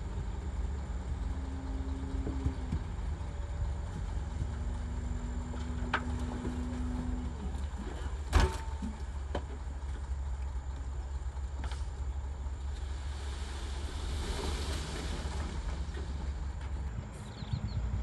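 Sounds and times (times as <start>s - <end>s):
truck engine rumbling: 0.0s - 18.0s
soil sliding with a hiss: 11.6s - 17.3s.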